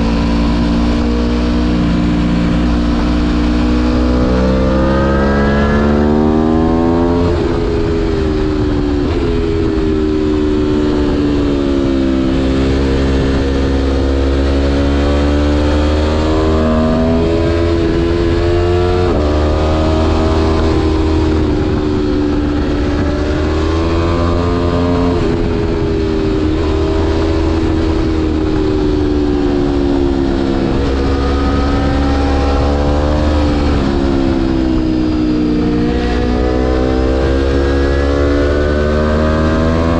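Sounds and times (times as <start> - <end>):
motorcycle engine revving: 0.0 - 39.9
wind rumble on microphone: 0.0 - 39.9.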